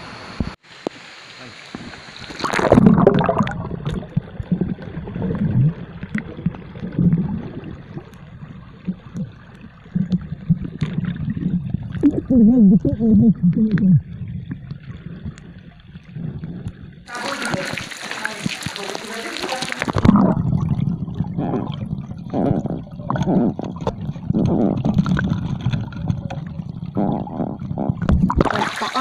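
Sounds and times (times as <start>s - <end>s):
wavering pitched gurgle: 1.4s - 29.0s
underwater gurgling and bubbling: 2.0s - 29.0s
small clicks underwater: 2.3s - 12.2s, 13.5s - 20.6s, 23.1s - 28.6s.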